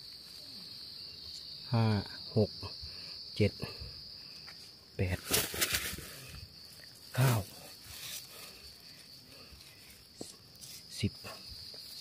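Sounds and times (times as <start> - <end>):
high-pitched insect drone: 0.0 - 5.1.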